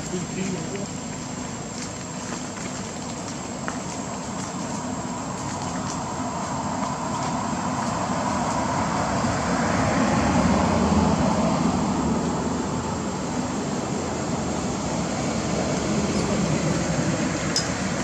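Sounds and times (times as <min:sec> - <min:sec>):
passing motor vehicle rumble: 0:00.0 - 0:18.0.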